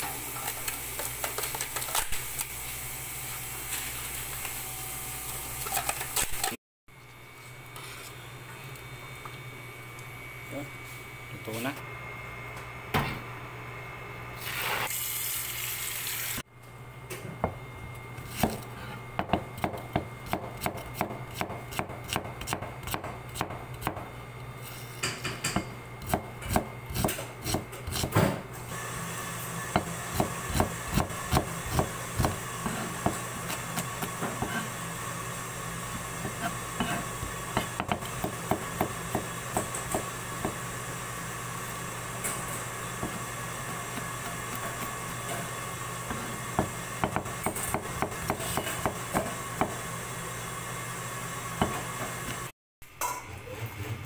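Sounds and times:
knife chopping on cutting board: 18.3s - 24.1s, 25.4s - 28.4s, 29.7s - 34.7s, 36.2s - 40.6s, 46.1s - 49.8s.

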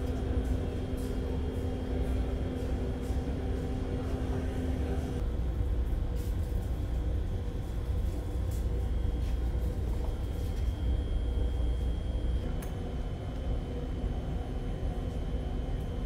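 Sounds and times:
higher steady hum: 0.0s - 5.9s
low machinery drone: 0.0s - 16.0s.

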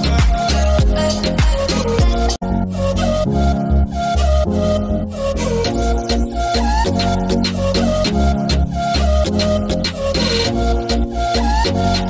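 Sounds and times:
music with deep bass drum: 0.0s - 2.4s.

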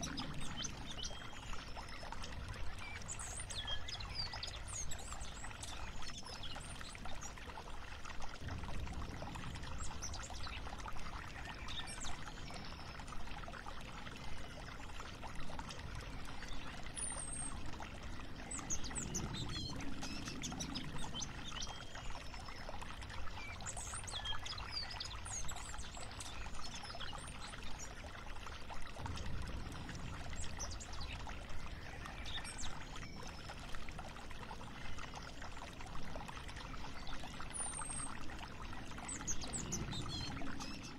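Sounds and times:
flowing water: 0.0s - 40.9s.

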